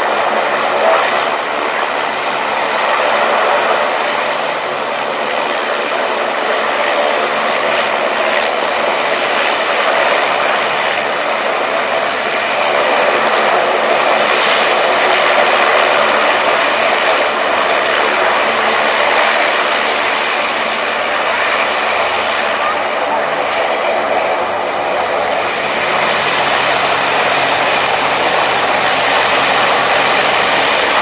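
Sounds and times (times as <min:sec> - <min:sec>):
hovercraft fan rush: 0:00.0 - 0:31.0
engine hum: 0:15.8 - 0:31.0.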